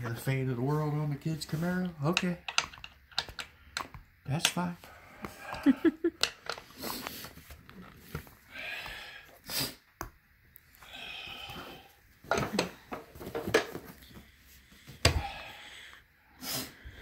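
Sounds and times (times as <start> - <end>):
chair parts knocking and clattering: 2.0 - 4.7, 12.2 - 14.2.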